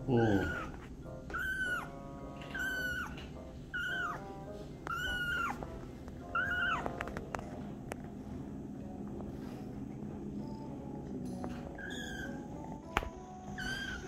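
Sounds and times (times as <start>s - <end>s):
kitten meowing: 0.0s - 7.1s, 11.7s - 12.6s, 13.5s - 14.0s.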